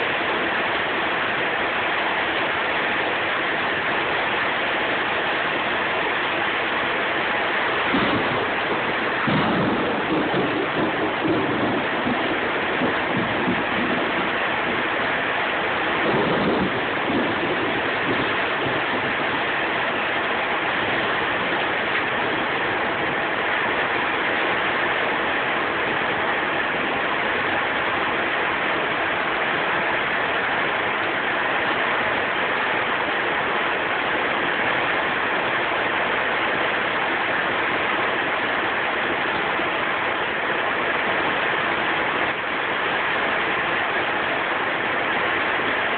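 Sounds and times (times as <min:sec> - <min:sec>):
heavy rain hiss: 0:00.0 - 0:45.9
low thunder rumble: 0:07.8 - 0:23.2.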